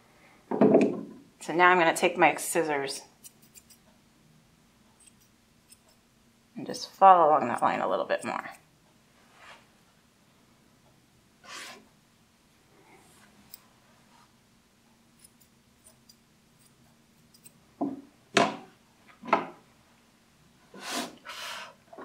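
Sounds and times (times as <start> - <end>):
scissors snipping fur: 3.2 - 3.8, 5.0 - 6.0, 15.2 - 17.6.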